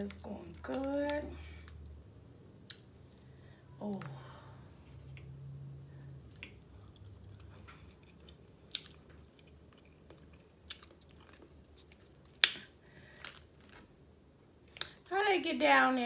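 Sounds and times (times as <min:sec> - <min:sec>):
chewing and eating: 0:06.2 - 0:14.0.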